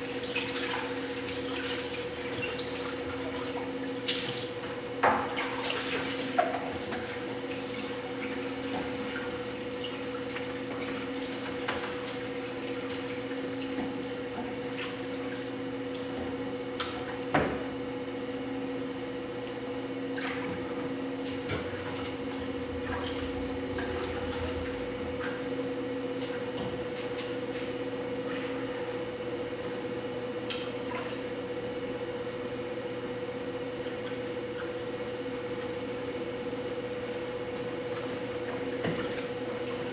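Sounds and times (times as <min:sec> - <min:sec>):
potter's wheel humming: 0:06.5 - 0:30.4.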